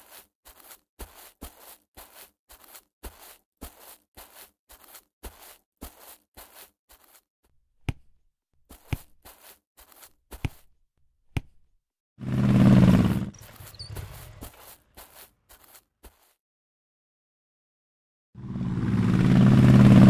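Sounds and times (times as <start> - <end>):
scuffing footsteps: 0.0 - 10.8, 13.3 - 16.4
motorcycle engine: 12.2 - 14.8, 18.4 - 20.0
faint squeaks: 13.3 - 15.2.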